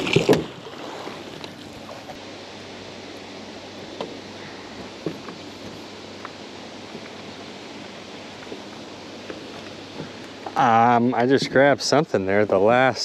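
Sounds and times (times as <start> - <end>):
soft wind hiss: 0.6 - 13.0.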